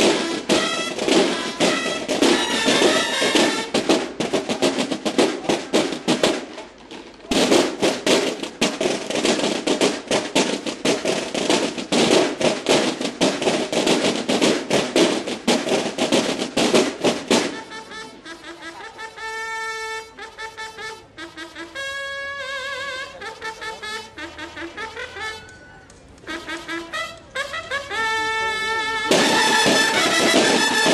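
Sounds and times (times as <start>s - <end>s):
military drums: 0.0s - 25.4s, 26.3s - 30.9s
bugles playing: 0.0s - 30.9s.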